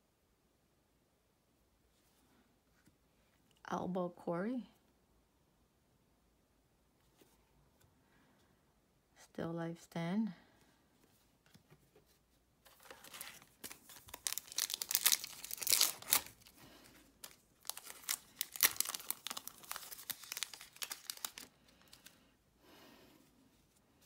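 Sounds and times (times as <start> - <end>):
wrapper tearing and crinkling: 12.7 - 16.6, 17.2 - 22.1.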